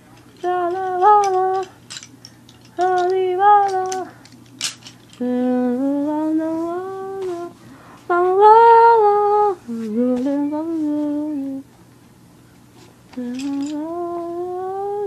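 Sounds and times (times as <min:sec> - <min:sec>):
woman humming: 0:05.2 - 0:11.6, 0:13.2 - 0:15.0.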